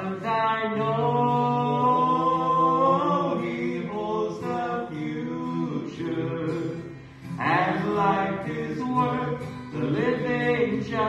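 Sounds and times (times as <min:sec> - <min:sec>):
men singing a hymn in harmony: 0:00.0 - 0:11.0
strummed acoustic guitar: 0:00.0 - 0:11.0.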